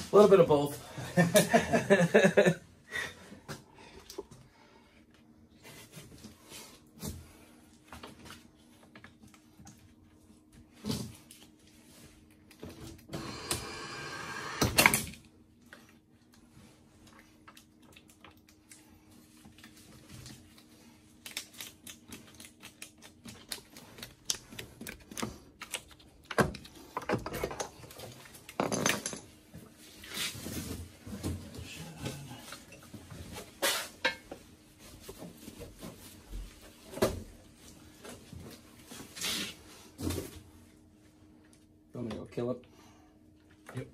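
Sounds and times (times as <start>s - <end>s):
machine low hum: 12.6s - 17.4s.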